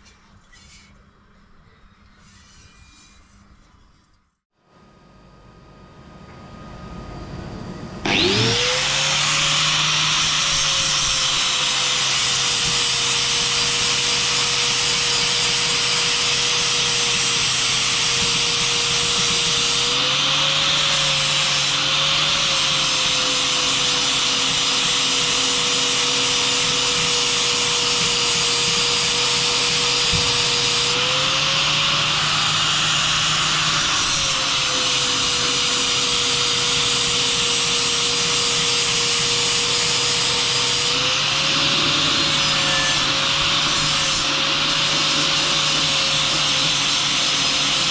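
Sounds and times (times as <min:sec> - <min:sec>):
grinding disc scraping metal: 0:00.0 - 0:01.1, 0:02.0 - 0:04.2
angle grinder motor whine: 0:06.0 - 0:47.9.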